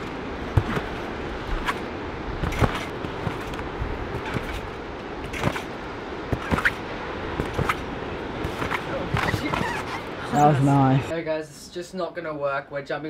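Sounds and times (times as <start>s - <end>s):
trampoline mat thudding: 0.5s - 1.8s, 2.4s - 5.7s, 6.3s - 6.8s, 8.4s - 9.9s.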